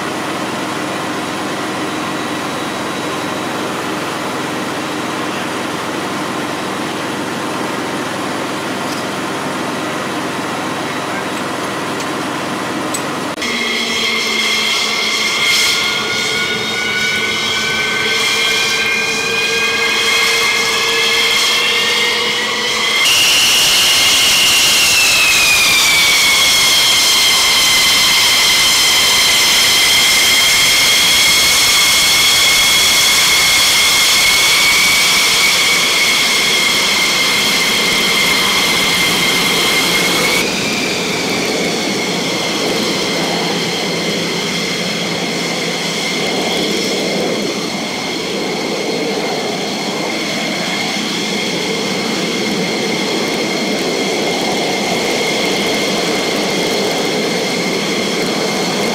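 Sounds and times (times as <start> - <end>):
jet engines idling: 0.0 - 58.9.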